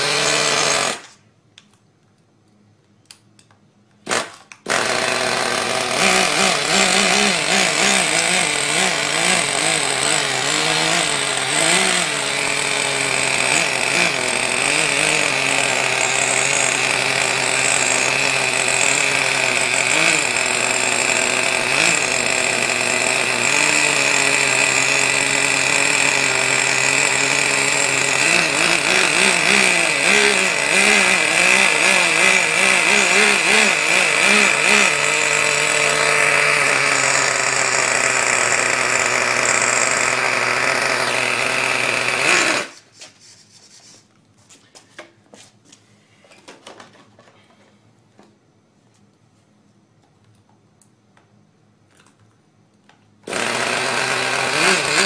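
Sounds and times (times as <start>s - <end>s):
small two-stroke engine running: 0.0s - 1.2s, 4.1s - 42.8s, 53.2s - 55.0s.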